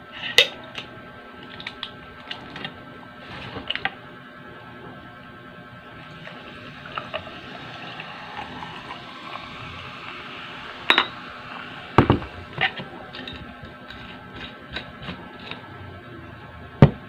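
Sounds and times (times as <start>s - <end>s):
cola pouring over ice: 5.9s - 15.5s
glass clink: 10.9s - 11.2s.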